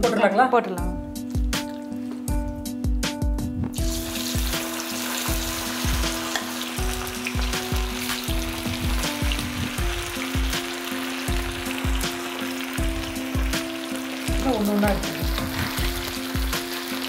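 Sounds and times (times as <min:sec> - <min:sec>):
background music with beat: 0:00.0 - 0:17.0
chicken sizzling in hot oil: 0:03.8 - 0:17.0.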